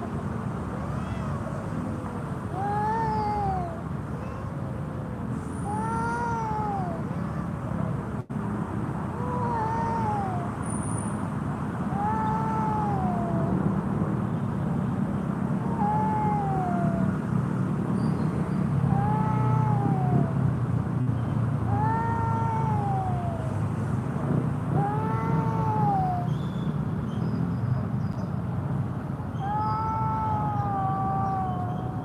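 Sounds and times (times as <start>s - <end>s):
cats yowling: 0.8s - 1.8s, 2.5s - 4.7s, 5.6s - 7.7s, 9.1s - 10.6s, 11.9s - 13.7s, 15.6s - 17.2s, 18.8s - 20.5s, 21.7s - 23.7s, 24.8s - 26.4s, 29.4s - 32.0s.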